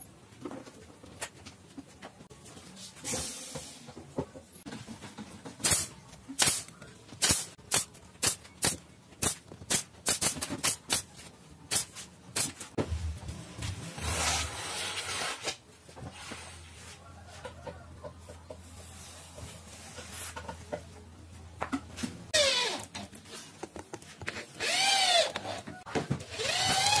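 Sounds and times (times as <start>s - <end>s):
nail gun firing: 5.6s - 11.0s.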